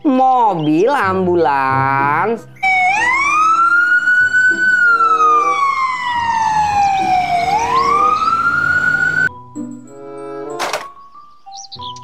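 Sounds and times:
ambulance siren wailing: 2.6 - 9.3.

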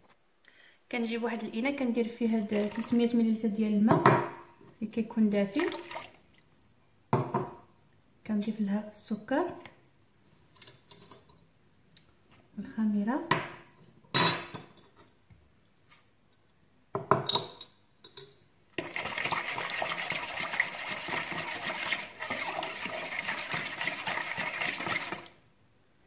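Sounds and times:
swishing of stirring water: 2.3 - 3.2, 5.5 - 7.0, 18.8 - 25.4.

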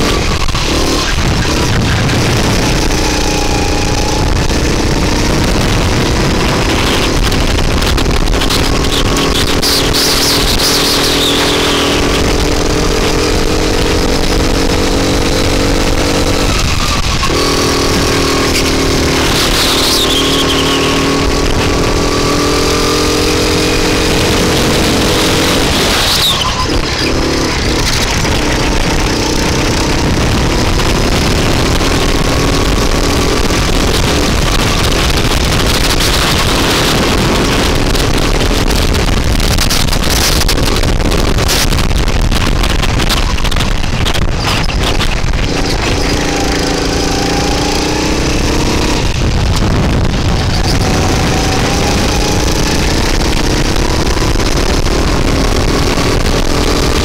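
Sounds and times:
go-kart engine running hard: 0.0 - 57.0.

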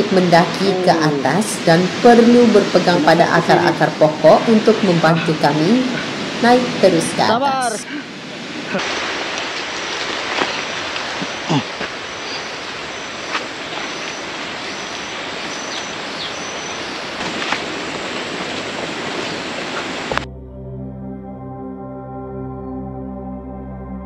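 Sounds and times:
rushing jungle ambience: 0.0 - 20.2
calm ambient music: 20.1 - 24.0.

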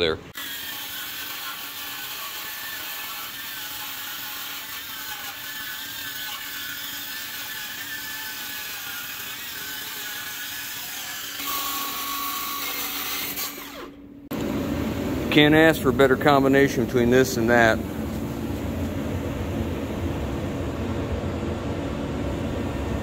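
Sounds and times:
circular saw cutting steel: 0.4 - 14.0.

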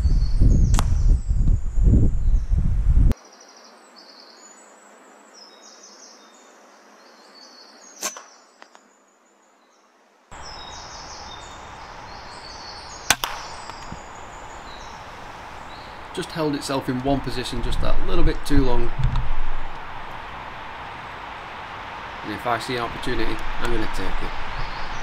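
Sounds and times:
birds singing: 0.0 - 2.6, 3.2 - 25.0
air rifle crack: 13.0 - 16.1.

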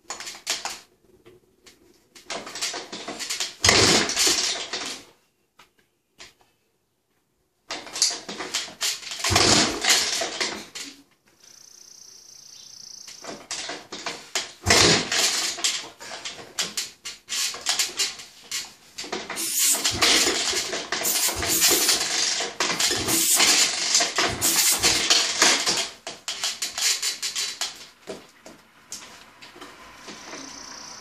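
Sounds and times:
two-stroke engine sputtering: 19.4 - 25.6.

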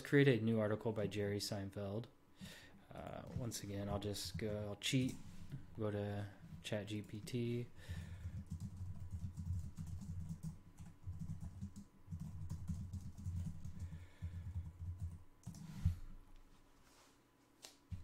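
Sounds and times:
typing on computer keyboard: 7.9 - 15.7.

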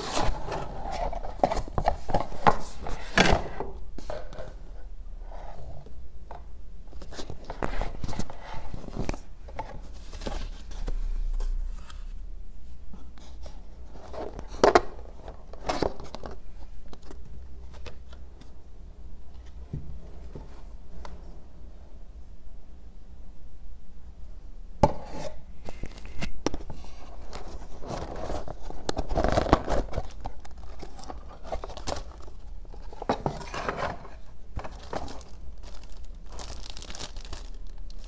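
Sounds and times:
packaging rustling: 27.3 - 38.0.

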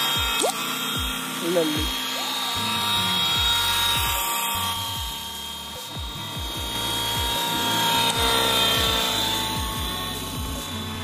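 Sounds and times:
music with bass drum beat: 0.0 - 1.2, 3.4 - 4.3, 4.9 - 11.0
model helicopter rotor whine: 0.0 - 11.0.

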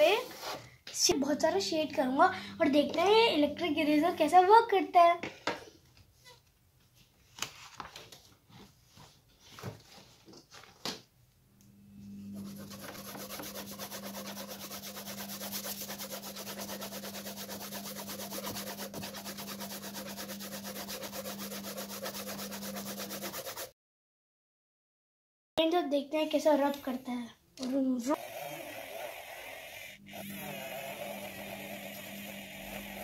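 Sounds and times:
low steady hum: 1.1 - 4.4, 11.5 - 18.3
page rustling: 7.2 - 11.0
pencil scratching on paper: 12.4 - 23.7, 28.2 - 33.0.

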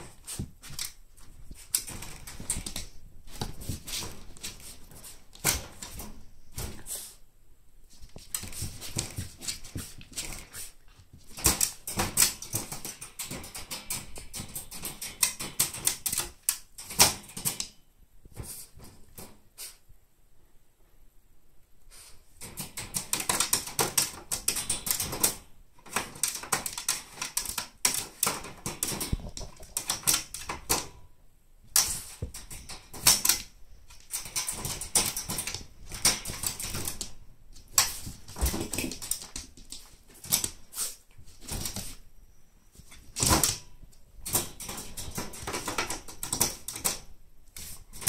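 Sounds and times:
wire cage rattling: 0.0 - 6.8, 11.3 - 17.7, 22.4 - 31.0, 31.8 - 40.6, 42.9 - 47.1
dog sniffing: 6.7 - 7.2, 40.6 - 41.1.

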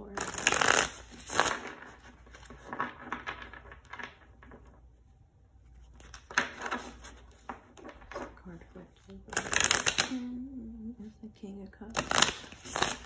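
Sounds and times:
cards being shuffled: 0.1 - 4.9, 5.6 - 8.4, 9.0 - 10.2, 11.9 - 13.0.

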